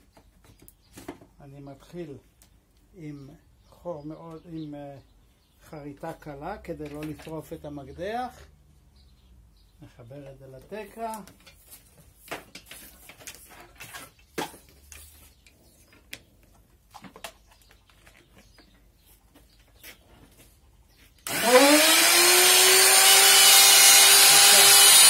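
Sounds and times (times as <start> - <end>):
tool handling clicks and knocks: 6.7 - 7.5, 11.1 - 18.6
electric router whining: 21.2 - 25.0.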